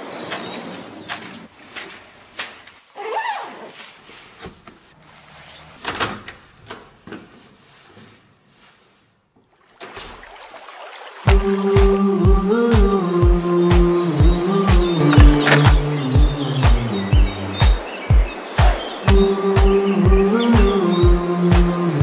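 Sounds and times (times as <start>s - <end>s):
short creak: 3.0s - 3.8s.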